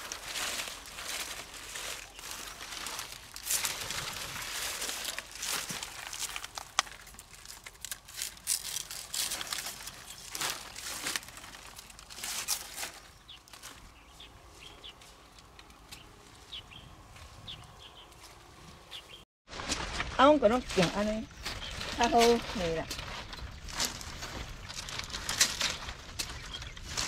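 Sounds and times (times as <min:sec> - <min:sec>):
leaves and netting rustling: 0:00.0 - 0:27.0
small birds chirping: 0:01.1 - 0:03.2, 0:09.6 - 0:19.2, 0:20.5 - 0:24.4, 0:25.3 - 0:27.0.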